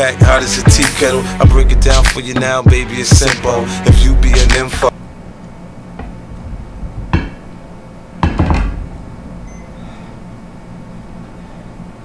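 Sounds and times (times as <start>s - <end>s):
knocks on a tabletop: 7.1s - 7.4s, 8.2s - 8.8s.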